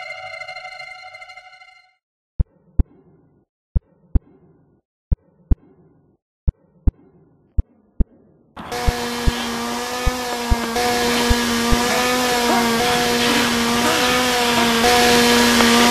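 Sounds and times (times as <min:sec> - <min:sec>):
chainsaw-like motor running: 0:08.6 - 0:15.9.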